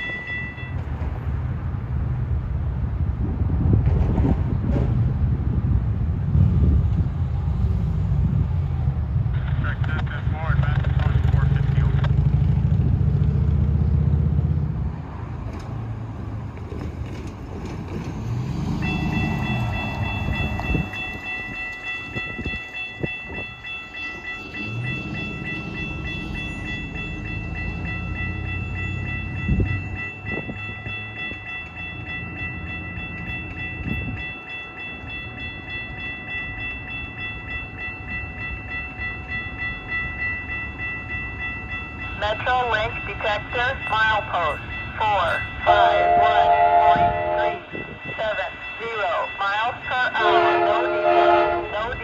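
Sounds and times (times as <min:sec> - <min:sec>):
railroad crossing bell ringing: 0:00.0 - 0:01.5, 0:09.6 - 0:14.4, 0:18.3 - 0:52.0
passing road traffic: 0:00.0 - 0:52.0.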